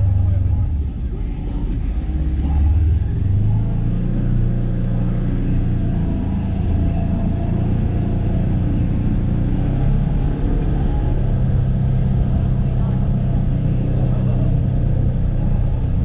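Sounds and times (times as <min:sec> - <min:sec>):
utility vehicle engine running: 0:00.0 - 0:16.0.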